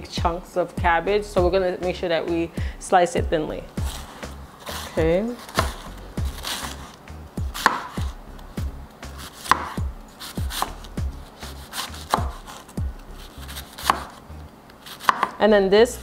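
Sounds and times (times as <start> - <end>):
knife tapping on cutting board: 7.6 - 8.0, 9.5 - 9.8, 15.0 - 15.4.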